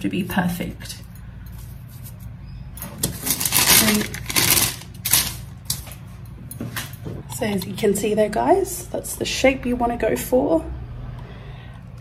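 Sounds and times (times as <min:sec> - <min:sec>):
rustling and handling noise: 0:01.4 - 0:07.6.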